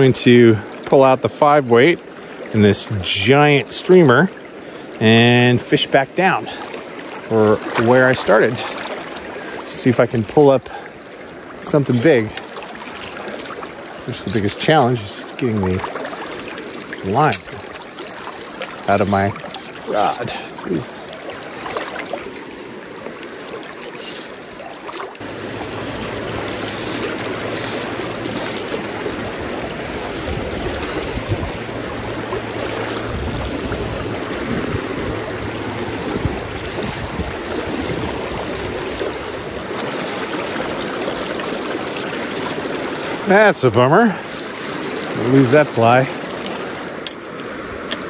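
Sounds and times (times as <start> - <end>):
river rushing over rocks: 10.4 - 48.0.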